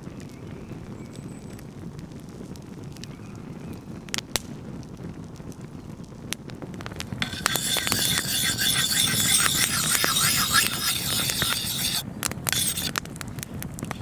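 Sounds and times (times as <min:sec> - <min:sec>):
campfire crackling and popping: 0:00.0 - 0:07.2, 0:12.0 - 0:14.0
plastic guard scraping knife blade: 0:07.2 - 0:13.0.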